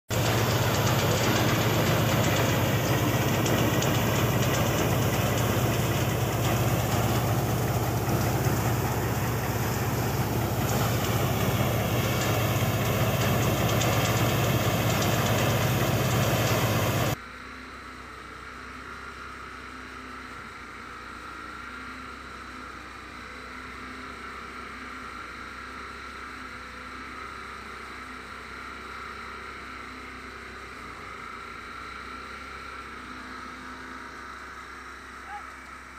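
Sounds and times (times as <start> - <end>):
thresher droning: 0.1 - 17.2.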